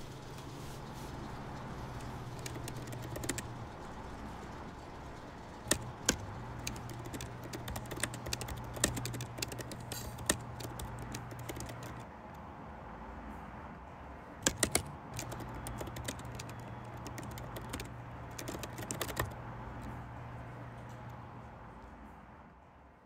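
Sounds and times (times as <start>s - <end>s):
low steady hum: 0.0s - 13.8s
keyboard key clicks: 2.0s - 3.6s, 5.6s - 12.0s, 14.4s - 19.9s.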